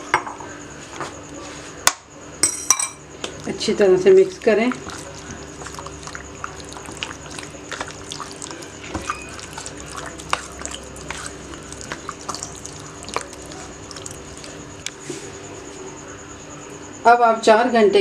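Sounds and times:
faint hum: 0.0s - 18.0s
wet squelching of marinade: 4.1s - 15.0s.

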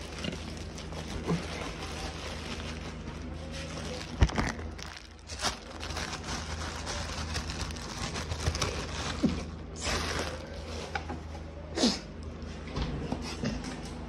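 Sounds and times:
rustling: 0.0s - 11.1s.

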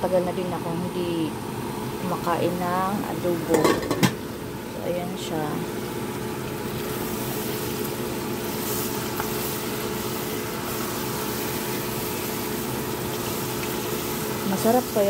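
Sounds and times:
machine hum: 0.0s - 15.0s
saucepan bubbling: 3.7s - 15.0s.

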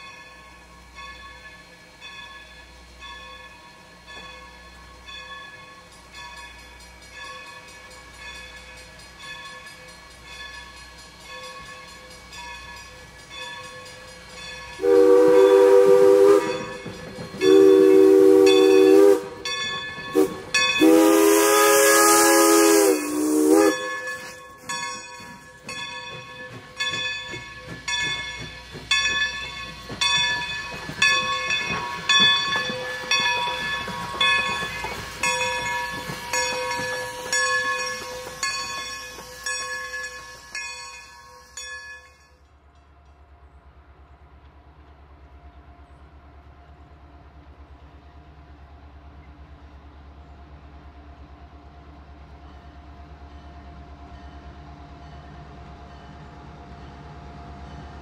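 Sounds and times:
locomotive bell ringing: 0.0s - 21.4s, 22.0s - 42.8s
steam locomotive chime whistle: 0.0s - 42.4s
steam hissing: 0.5s - 42.0s.

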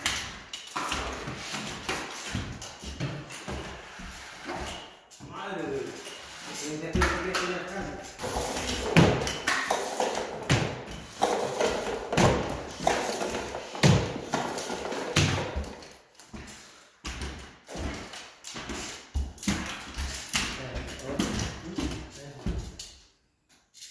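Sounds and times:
tool knocks and scrapes: 5.9s - 15.8s.

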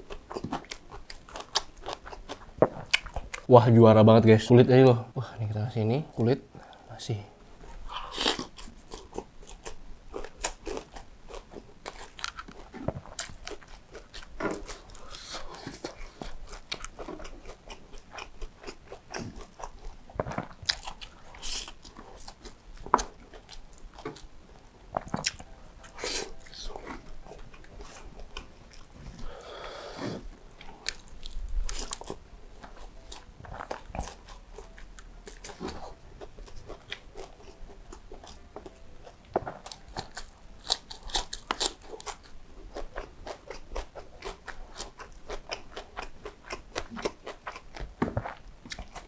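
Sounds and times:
chewing fried chicken: 0.0s - 3.5s, 7.8s - 24.3s, 30.5s - 49.0s
crispy skin crunching: 7.8s - 29.4s, 30.3s - 49.0s.

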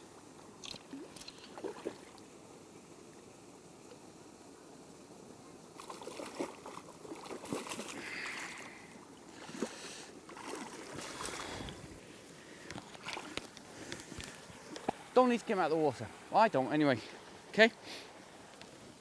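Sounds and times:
fish splashing in water: 5.8s - 11.8s, 12.8s - 13.5s.

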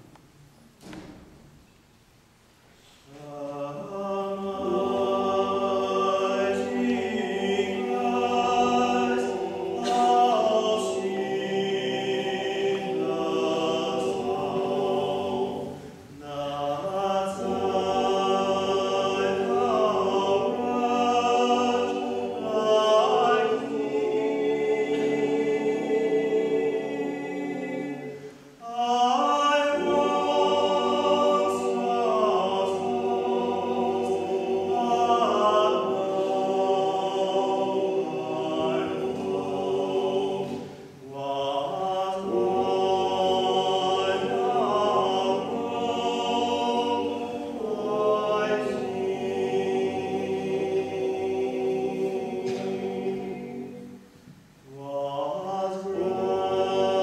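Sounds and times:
male vocal group singing a cappella: 3.0s - 54.0s, 54.7s - 57.0s.

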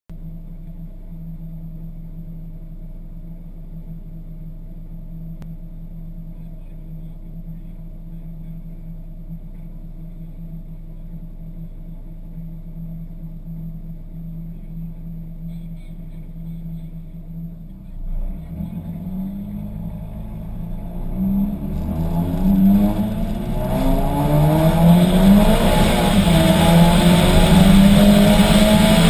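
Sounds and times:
car engine running steadily: 0.1s - 29.0s.

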